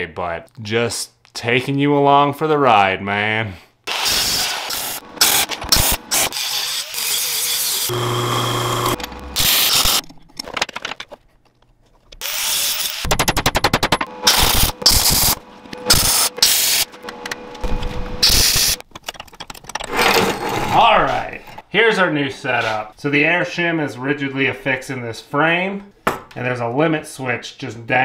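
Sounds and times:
power tool driving bolts: 3.9s - 10.2s, 12.2s - 18.9s.

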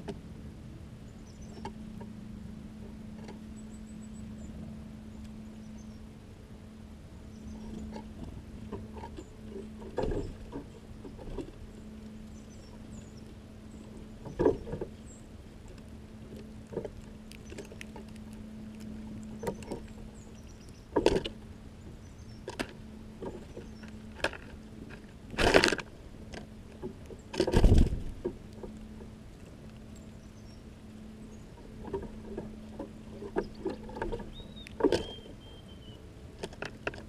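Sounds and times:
steady low hum: 0.0s - 37.0s
birds pecking at seed: 7.2s - 37.0s
wing flutter: 7.4s - 35.4s.

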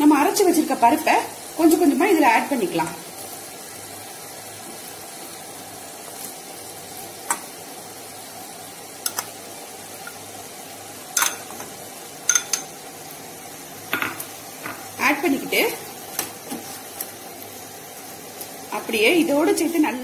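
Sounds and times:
beans sizzling in a pan: 0.0s - 20.0s
spoon clinking: 11.2s - 11.6s, 12.2s - 12.8s.

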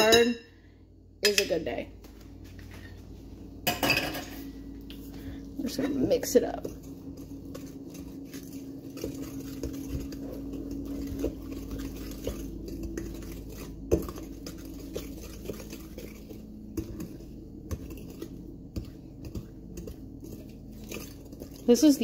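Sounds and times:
whisk scraping through batter: 5.0s - 22.0s
whisk knocking against bowl: 5.9s - 22.0s.

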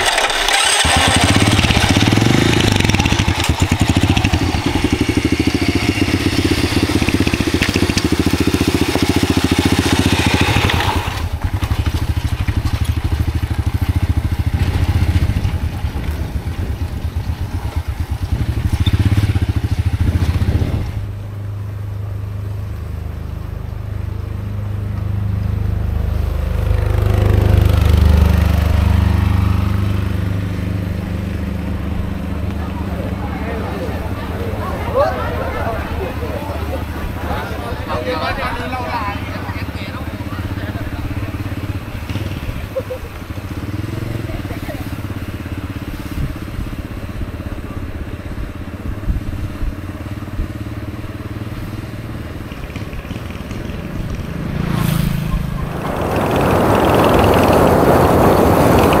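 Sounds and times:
tyres crunching and frame rattling: 0.0s - 19.3s
small motorcycle engine running: 0.0s - 59.0s.

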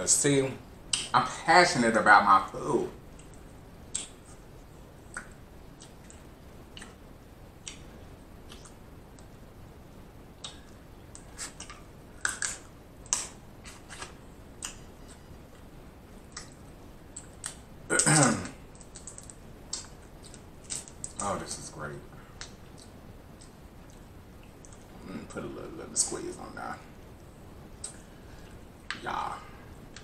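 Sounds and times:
chewing mouth clicks and smacks: 5.1s - 7.0s, 7.6s - 9.3s.

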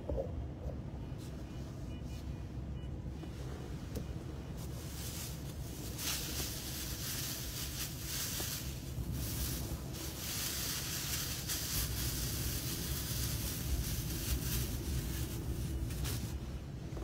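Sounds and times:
car engine low rumble: 0.0s - 17.0s
steady hiss: 4.6s - 16.5s.

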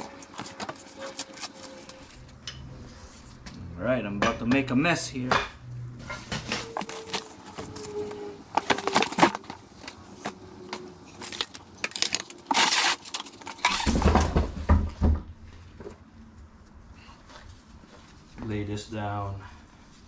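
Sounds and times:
packaging rustling: 0.0s - 2.3s, 6.6s - 13.9s
metal parts clinking: 6.6s - 13.9s.

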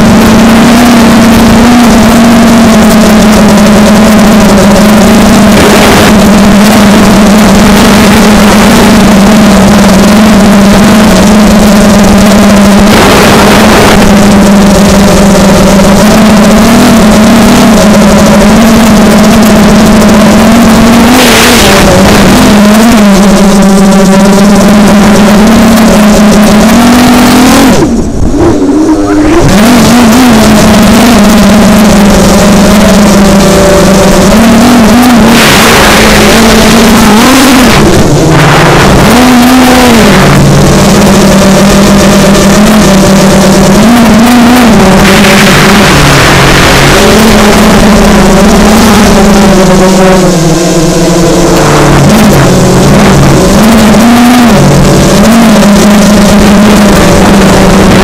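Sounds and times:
quadcopter motors buzzing: 0.0s - 58.0s.

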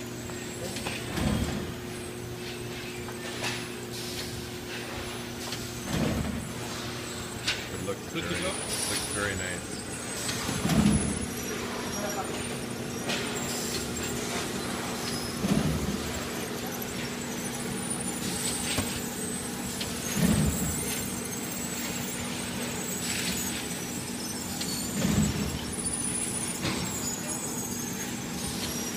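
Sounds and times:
packaging machinery humming: 0.0s - 28.9s.

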